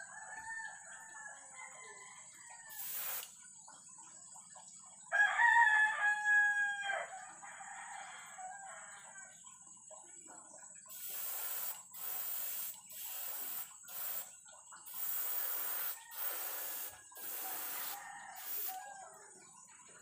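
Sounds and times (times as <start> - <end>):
rooster crowing: 0.0 - 3.2, 5.1 - 9.2, 14.9 - 19.4
airbrush spray hiss: 2.7 - 3.4, 10.9 - 18.8.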